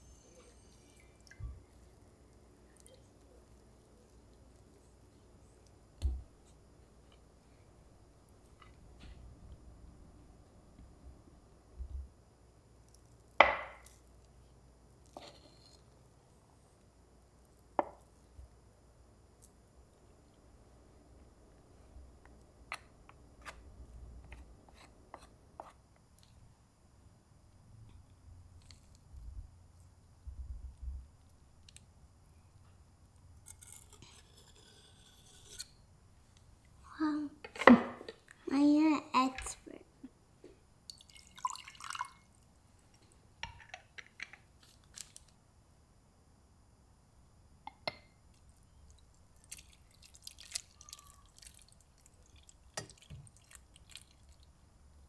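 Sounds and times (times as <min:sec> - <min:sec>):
knife cutting butter: 0:33.4 - 0:35.8.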